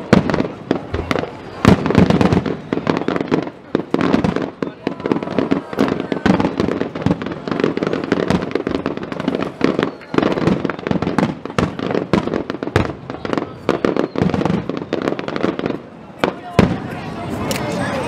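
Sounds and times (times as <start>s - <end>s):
fireworks booming and crackling: 0.0s - 18.0s.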